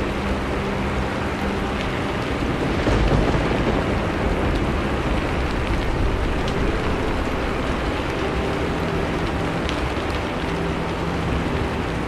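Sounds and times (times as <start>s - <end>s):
raindrop ticks: 0.0s - 12.0s
steady rain: 0.0s - 12.0s
distant thunder rumble: 2.2s - 8.5s.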